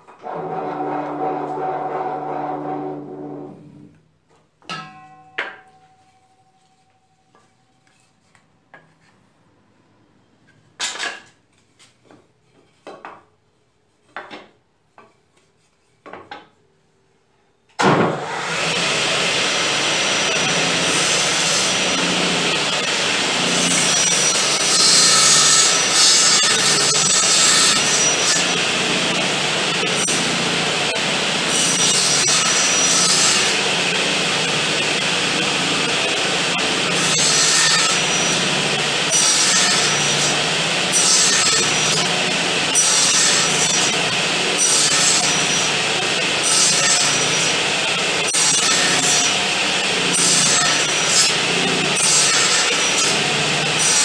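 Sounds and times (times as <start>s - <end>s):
circular saw cutting wood: 0.2s - 3.9s, 18.1s - 54.0s.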